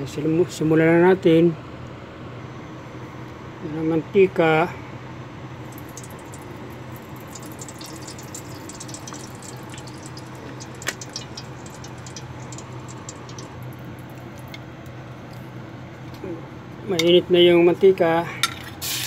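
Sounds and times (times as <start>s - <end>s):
steady low hum: 0.0s - 18.8s
oil crackling as it heats: 5.6s - 16.2s, 18.7s - 19.0s
oil pouring into wok: 5.7s - 14.6s.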